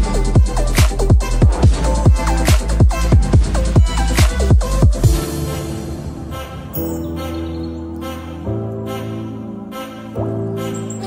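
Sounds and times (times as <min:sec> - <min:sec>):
electronic music with kick drums: 0:00.0 - 0:05.9.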